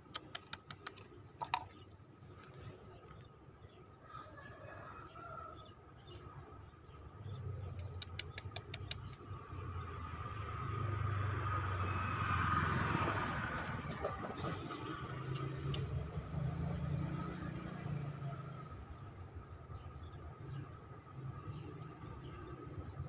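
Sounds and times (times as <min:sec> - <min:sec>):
motor vehicle passing by: 0:09.1 - 0:23.0.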